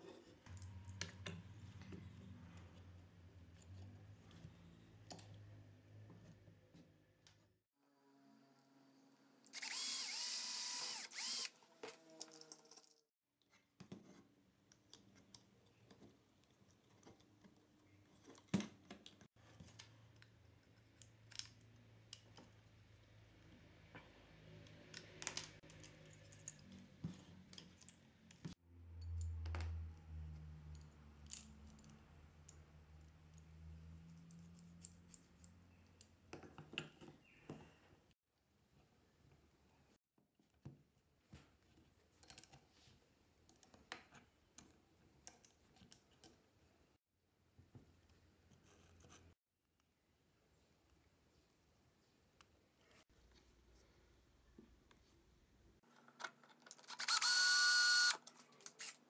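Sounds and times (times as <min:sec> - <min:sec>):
cordless drill whining: 0:09.5 - 0:11.6, 0:56.9 - 0:58.2.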